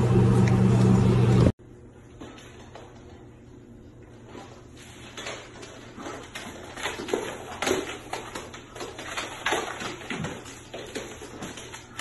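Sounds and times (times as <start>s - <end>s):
claws and hooves tapping on hardwood: 5.0s - 12.0s.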